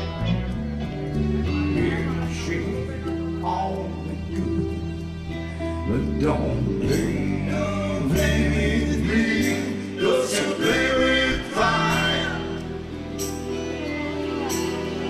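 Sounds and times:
live band music: 0:00.0 - 0:15.0
person singing: 0:01.4 - 0:13.5.

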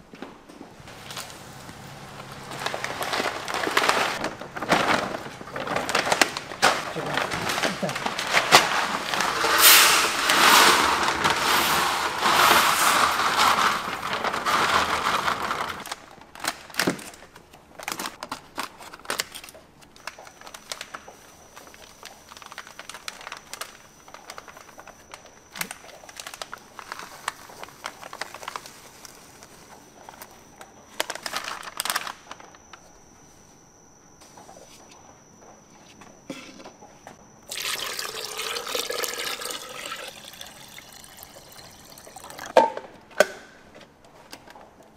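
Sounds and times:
pellets pouring rattling rush: 0:00.8 - 0:15.9, 0:37.5 - 0:42.5
foil packets crinkling: 0:00.8 - 0:33.0, 0:37.5 - 0:42.5.

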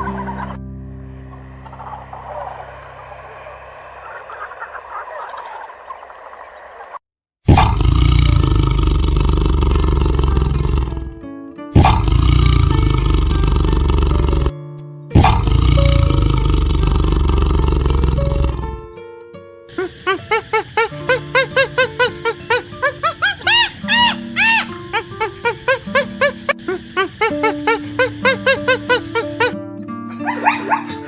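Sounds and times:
background music: 0:00.0 - 0:02.8, 0:17.7 - 0:31.0
tiger roaring: 0:07.5 - 0:11.2, 0:11.8 - 0:14.5, 0:15.2 - 0:18.8.

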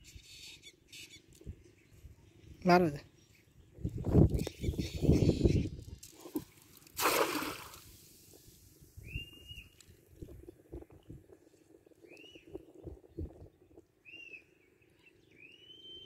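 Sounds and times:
bird chirps: 0:04.3 - 0:05.9, 0:14.0 - 0:16.0
net splashing onto water: 0:06.3 - 0:08.4.

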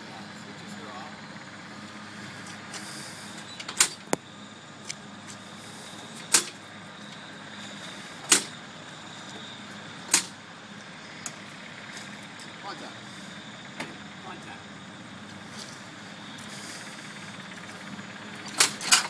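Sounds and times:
engine snap as propeller turns: 0:17.2 - 0:19.0.

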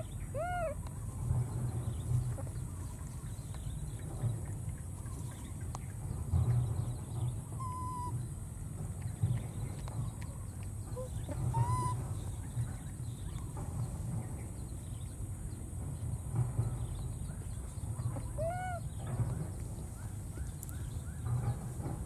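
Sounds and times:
baby monkey crying: 0:00.0 - 0:00.8, 0:07.6 - 0:08.1, 0:11.0 - 0:12.0, 0:18.2 - 0:18.9.

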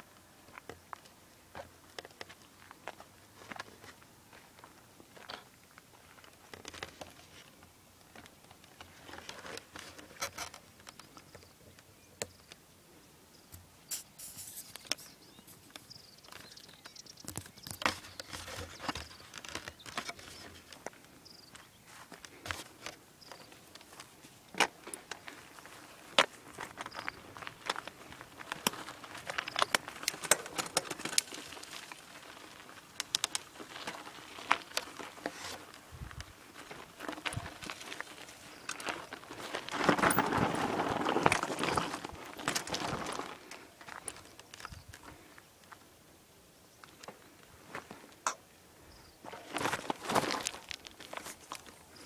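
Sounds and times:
footsteps on stony ground: 0:00.4 - 0:11.5, 0:13.6 - 0:45.8, 0:49.0 - 0:52.0.

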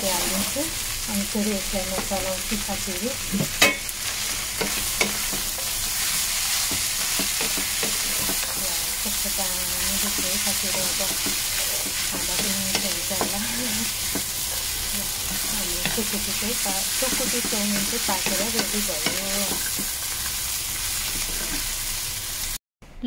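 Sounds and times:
food sizzling in hot oil: 0:00.0 - 0:22.6
spatula scraping a pan: 0:03.4 - 0:08.6, 0:09.8 - 0:21.8.

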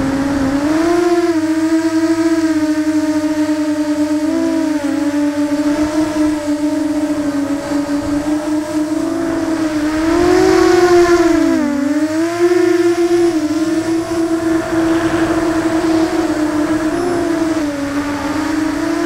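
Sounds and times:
quadcopter motors whining: 0:00.0 - 0:19.0.

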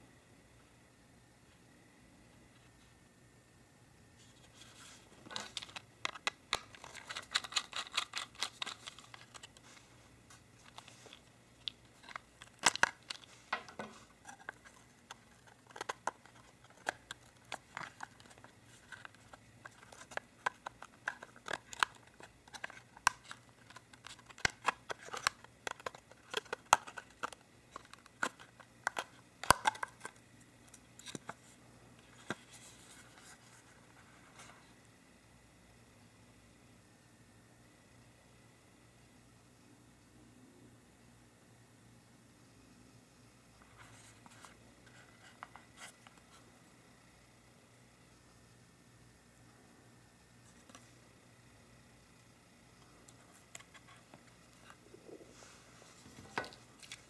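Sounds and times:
plastic casing clicking and creaking: 0:05.3 - 0:09.6, 0:10.6 - 0:31.4.

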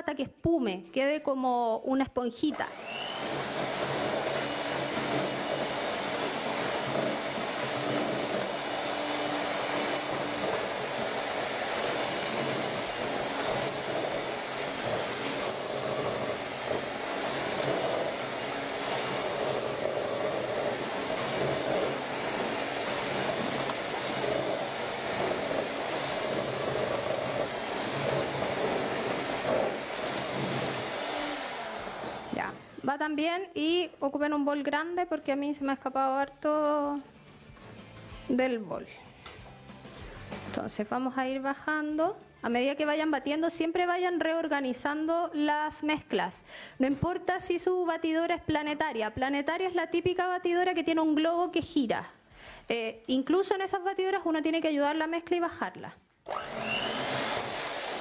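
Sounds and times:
electric hand mixer running: 0:02.5 - 0:32.9, 0:56.3 - 0:58.0.

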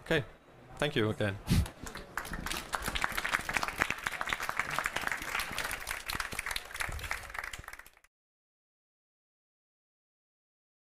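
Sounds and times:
audience applauding: 0:01.6 - 0:08.1.

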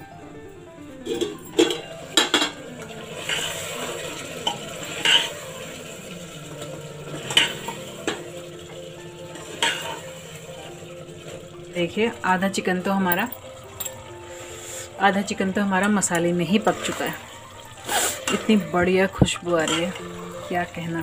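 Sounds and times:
food sizzling: 0:00.8 - 0:21.0
steel plate clattering: 0:01.0 - 0:08.6, 0:09.4 - 0:10.2, 0:18.2 - 0:21.0
spoon scraping pot: 0:19.6 - 0:20.2.

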